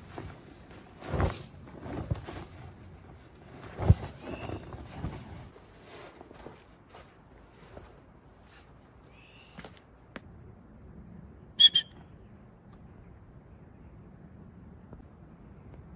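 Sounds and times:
thuds and rustling on forest floor: 0:03.5 - 0:08.7
short high whistle-like call: 0:09.1 - 0:09.6, 0:11.6 - 0:12.1.

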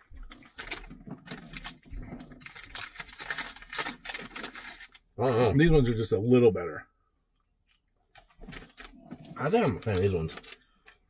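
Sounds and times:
plastic wrapper crinkling: 0:00.3 - 0:05.1.

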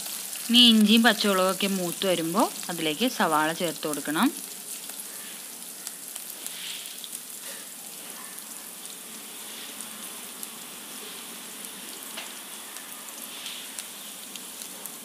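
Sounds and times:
oil sizzling with crackling pops: 0:00.0 - 0:15.0.

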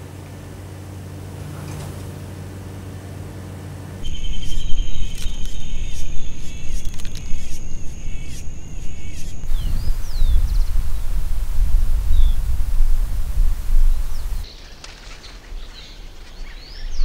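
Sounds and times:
high insect drone: 0:00.0 - 0:14.5
low office hum: 0:00.0 - 0:14.5
birds chirping: 0:02.8 - 0:17.0
low rumble: 0:04.0 - 0:14.5.

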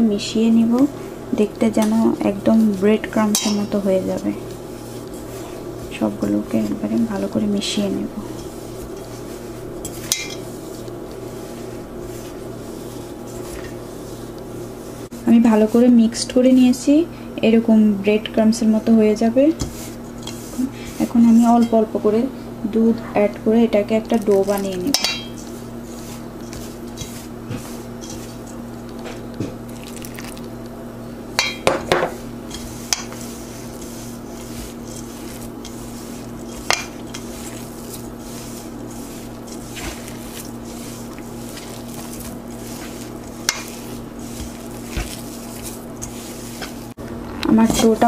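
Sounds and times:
hands mixing dough in a bowl: 0:00.0 - 0:48.0
knocks and clinks against metal bowl: 0:24.9 - 0:25.4.

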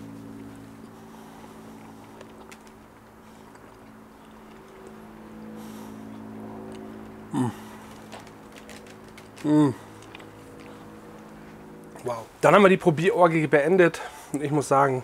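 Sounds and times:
steady low hum: 0:00.0 - 0:15.0
person humming mmm: 0:07.3 - 0:07.8, 0:09.4 - 0:09.9.

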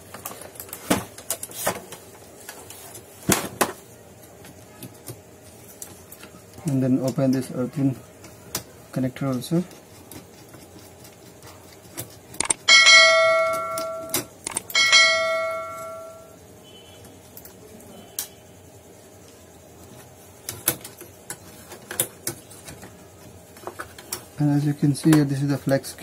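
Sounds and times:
bell-like metallic rings: 0:12.6 - 0:16.4.

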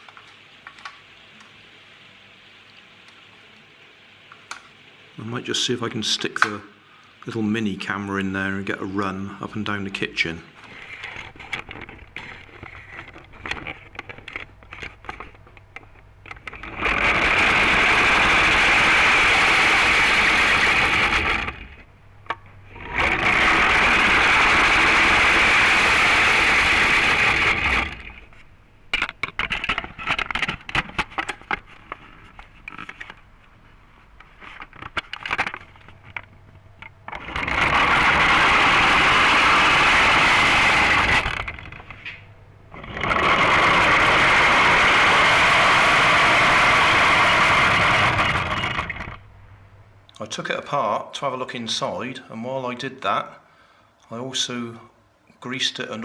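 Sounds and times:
clockwork motor whirring: 0:16.3 - 0:21.9, 0:22.7 - 0:28.4, 0:37.1 - 0:42.0, 0:42.7 - 0:49.2
clicks and knocks: 0:28.9 - 0:33.2.

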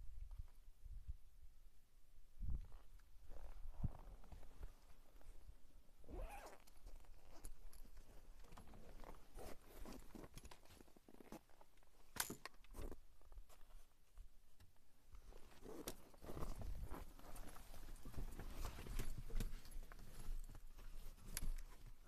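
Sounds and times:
clothing rustle: 0:15.2 - 0:22.0.

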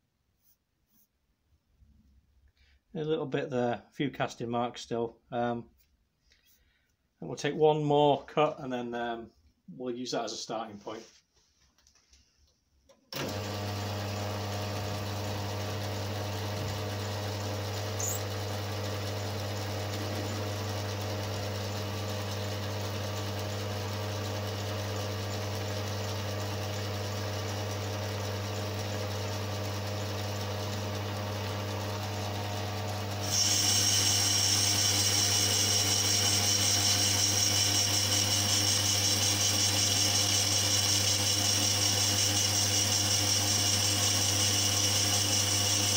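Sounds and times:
lathe motor hum: 0:13.2 - 0:45.9.

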